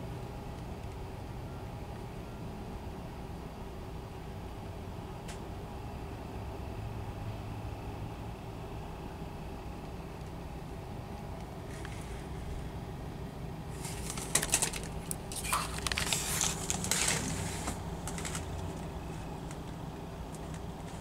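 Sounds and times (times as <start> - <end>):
sharp clattering and rattling: 13.8 - 18.9.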